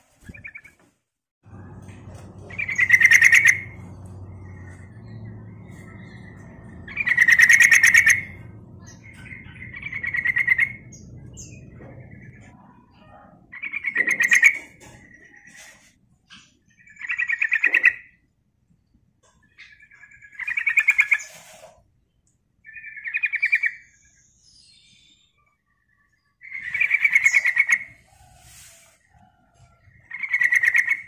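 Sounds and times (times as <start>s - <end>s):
bird chattering song: 2.2s - 15.7s, 16.4s - 18.2s, 19.4s - 21.5s, 22.6s - 28.0s, 29.9s - 31.0s.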